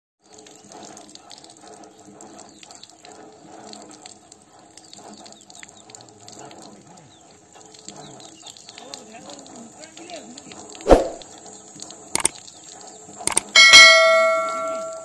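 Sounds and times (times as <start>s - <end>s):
water pouring into stone trough: 0.2s - 15.0s
bird splashing in water: 10.8s - 11.2s.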